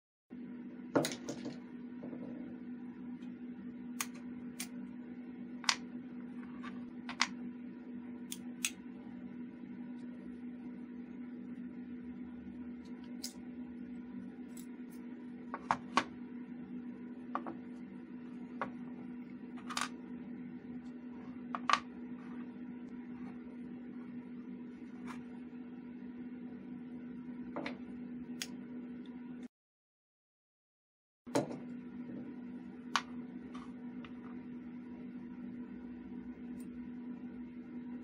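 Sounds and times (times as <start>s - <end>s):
low hum: 0.3s - 29.5s.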